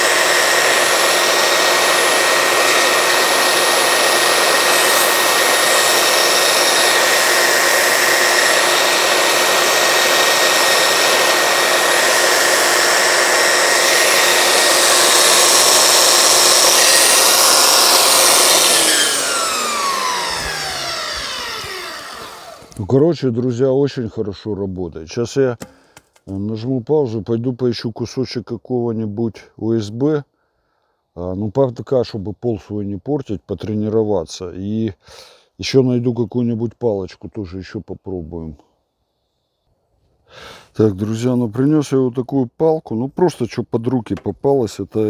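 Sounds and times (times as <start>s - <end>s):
wood against sanding belt: 0.0s - 22.9s
belt sander whine: 0.0s - 23.0s.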